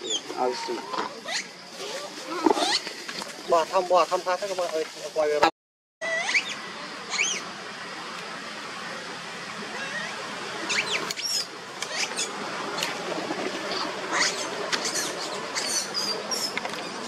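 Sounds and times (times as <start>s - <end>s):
monkey squeaking: 0.0s - 2.0s, 2.6s - 2.8s, 6.0s - 7.4s, 9.7s - 12.3s, 13.7s - 17.0s
steady background hiss: 0.0s - 5.5s, 6.1s - 17.0s.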